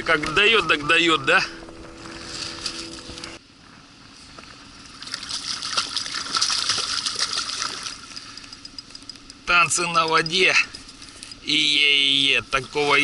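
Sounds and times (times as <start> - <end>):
steady hum: 0.0 - 13.0
fish splashing at the surface: 4.9 - 8.1.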